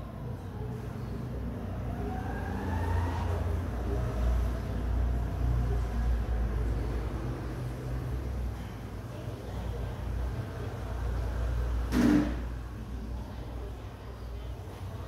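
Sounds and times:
road traffic rumble: 0.0 - 15.0
engine rising in pitch: 1.5 - 8.0.

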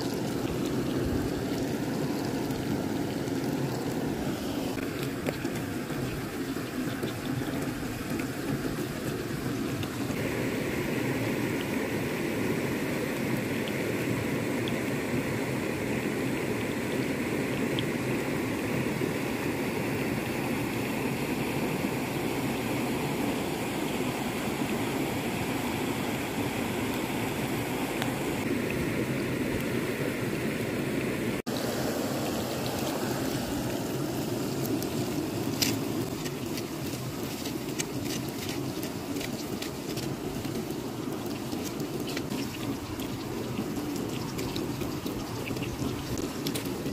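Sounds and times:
creek rushing: 0.0 - 46.9
embers crackling when stirred: 32.5 - 46.9.

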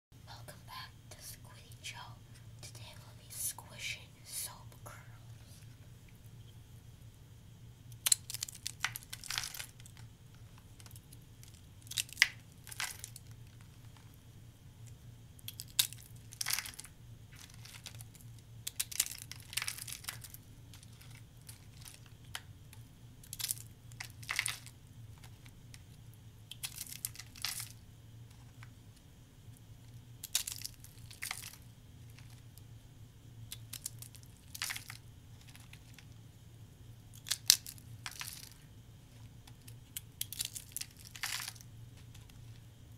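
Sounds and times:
soap curls crackling crunches: 7.9 - 14.2, 14.8 - 32.6, 33.4 - 36.2, 37.1 - 42.8.

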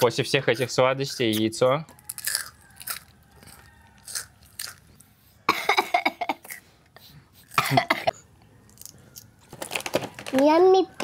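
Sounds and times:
person coughing: 5.5 - 6.5, 7.6 - 8.2.

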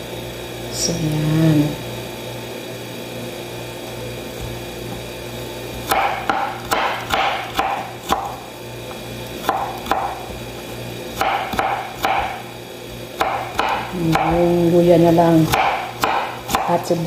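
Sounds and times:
knife slicing onion on board: 5.8 - 8.4, 9.4 - 10.5, 11.1 - 12.5, 13.2 - 17.0.

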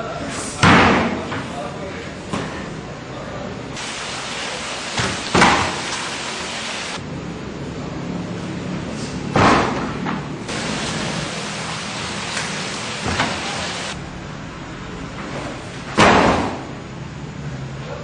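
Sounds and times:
steady hiss: 3.7 - 7.1, 10.5 - 14.0
bodies falling onto mats: 9.3 - 10.2, 15.2 - 16.7.

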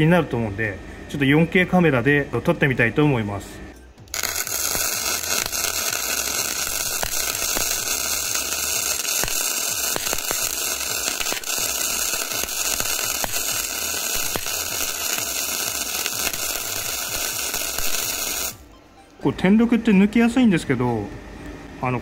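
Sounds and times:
welding arc crackling hiss: 4.1 - 18.6.

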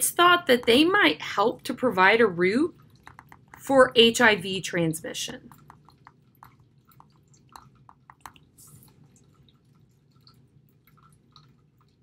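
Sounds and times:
stylus tapping on tablet screen: 3.0 - 3.7, 5.5 - 8.5.

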